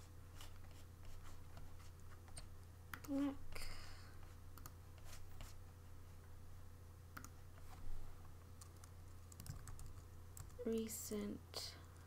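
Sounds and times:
low electrical hum: 0:00.0 - 0:12.0
keyboard keystrokes: 0:08.6 - 0:10.6.

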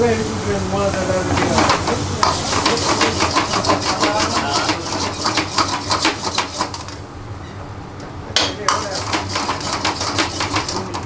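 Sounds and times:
ladle scraping a wok: 0:01.3 - 0:07.5, 0:08.6 - 0:11.0.

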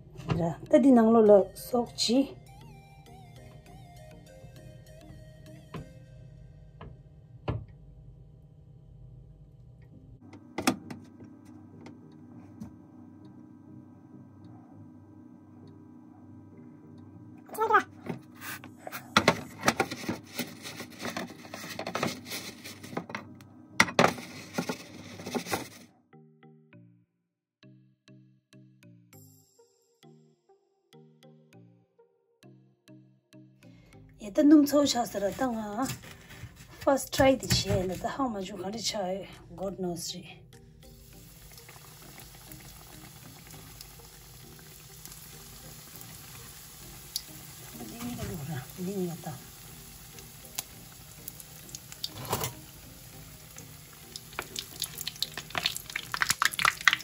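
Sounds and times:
light music: 0:00.0 - 0:07.7, 0:09.8 - 0:27.0, 0:27.6 - 0:57.0
batter crackling in a metal bowl: 0:41.4 - 0:57.0.

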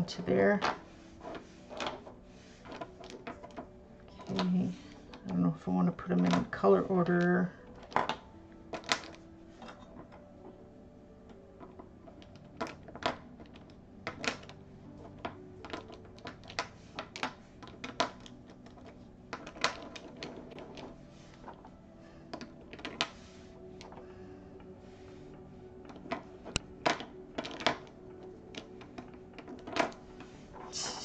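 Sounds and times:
plastic pens clicking on desk: 0:06.1 - 0:09.8, 0:11.6 - 0:21.6, 0:25.8 - 0:31.0.

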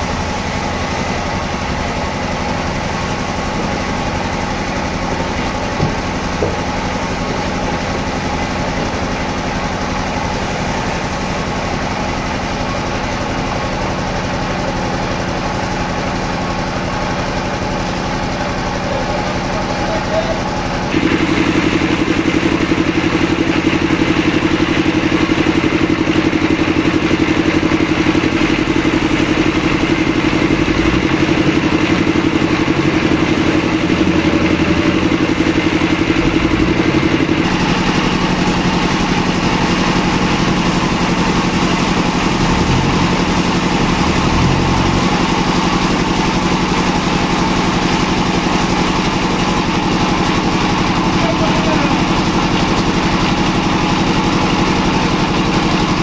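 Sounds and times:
engine running steadily: 0:00.0 - 0:56.0.

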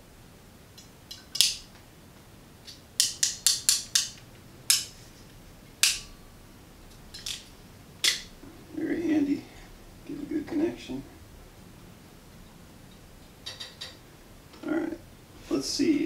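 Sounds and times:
wire crimpers clicking: 0:00.8 - 0:01.8, 0:02.6 - 0:05.0, 0:05.8 - 0:06.1, 0:12.9 - 0:14.0.

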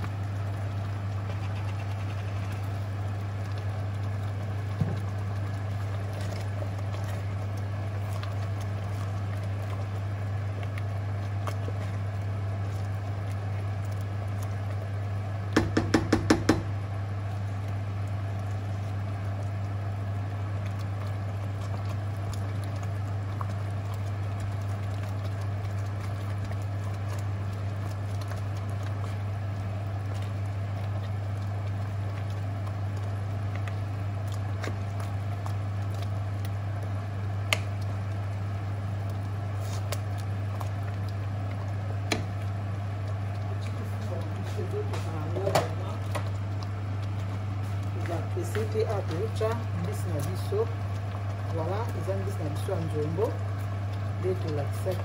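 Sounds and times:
steady low hum: 0:00.0 - 0:55.0
wooden spoon stirring stew in pot: 0:00.1 - 0:55.0
spoon knocking on pot: 0:15.6 - 0:16.7.

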